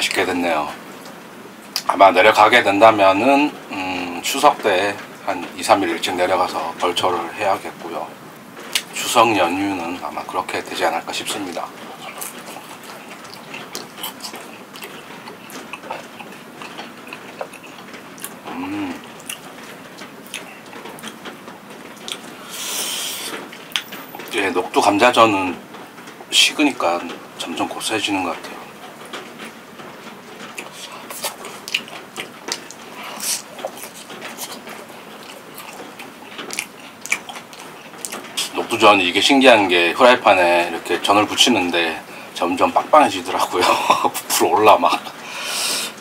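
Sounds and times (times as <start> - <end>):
steady rain falling: 0.0 - 46.0
man chewing: 11.3 - 24.4, 28.8 - 38.6
man humming: 18.4 - 19.1.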